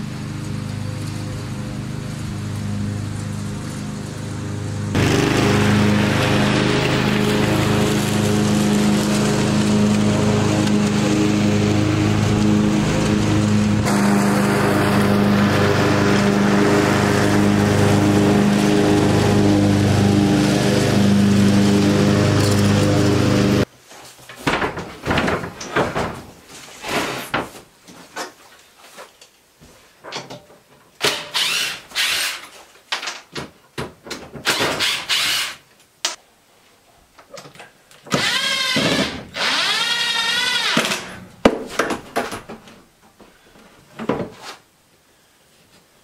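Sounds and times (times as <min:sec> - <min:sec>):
cordless drill driving screws: 0:31.0 - 0:32.5, 0:34.4 - 0:35.6, 0:38.1 - 0:41.2.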